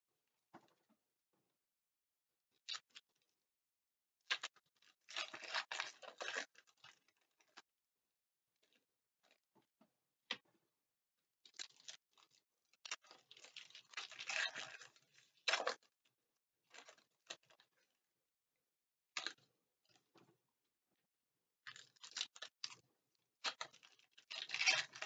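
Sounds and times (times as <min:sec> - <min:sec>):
foil wrapper crinkling and tearing: 0:23.4 - 0:25.0.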